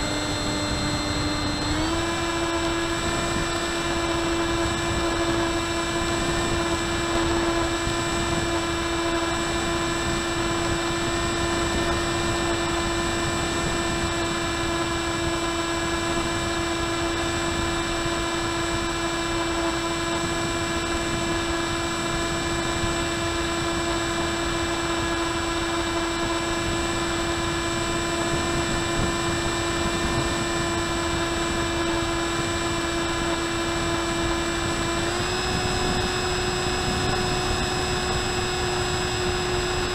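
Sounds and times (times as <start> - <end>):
electric motor droning whine: 0.0 - 39.9
rushing wind noise: 0.0 - 39.9.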